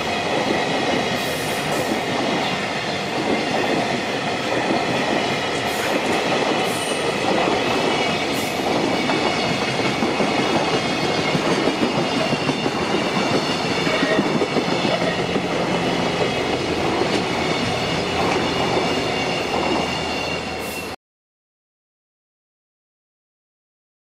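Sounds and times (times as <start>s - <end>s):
freight train wheels clacking: 0.0s - 21.0s
crossing warning bell ringing: 11.0s - 21.0s.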